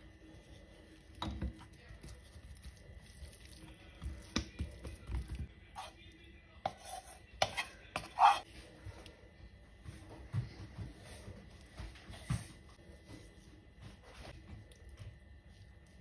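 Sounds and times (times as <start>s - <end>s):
scrape on cutting board: 6.7s - 8.4s.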